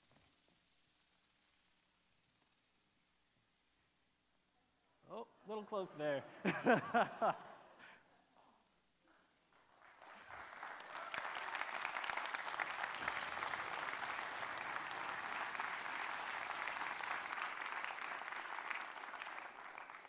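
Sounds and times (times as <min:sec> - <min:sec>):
audience applauding: 0:09.5 - 0:20.0.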